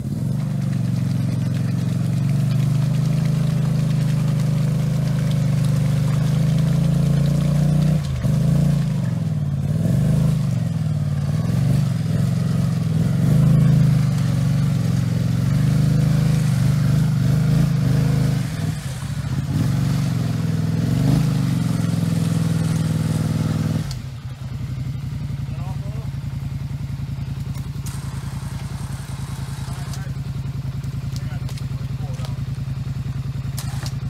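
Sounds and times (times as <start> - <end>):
atv engine revving in mud: 0.0 - 34.0.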